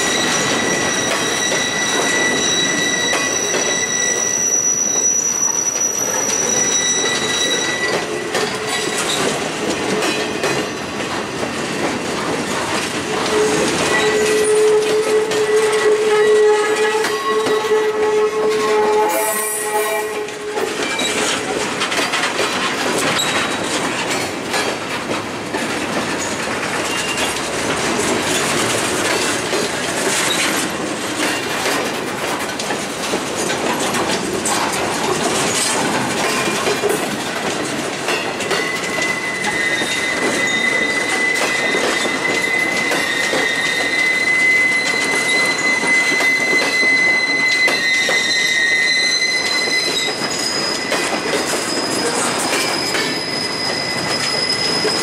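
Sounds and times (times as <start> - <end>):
high-pitched wheel squeal: 0.0 - 9.0, 13.3 - 21.4, 38.5 - 55.0
wheel squeal: 0.0 - 9.3, 13.2 - 21.5, 23.1 - 23.7, 38.4 - 55.0
train wheels clattering over rails: 0.0 - 19.0, 20.2 - 55.0.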